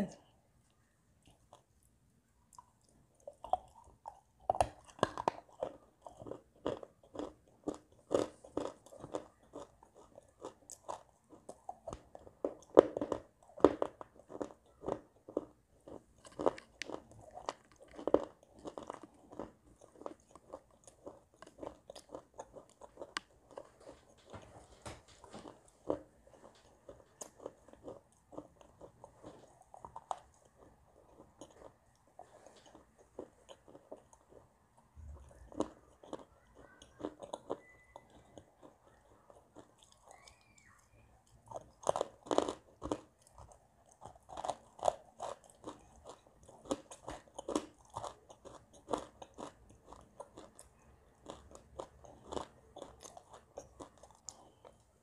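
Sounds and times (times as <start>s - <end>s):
crunching and chewing clay: 0.7s - 55.0s.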